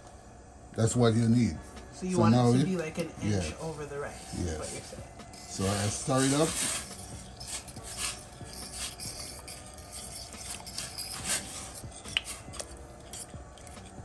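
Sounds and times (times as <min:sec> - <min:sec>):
fork scraping metal pot: 0:04.6 - 0:14.0
metal clink: 0:06.6 - 0:14.0.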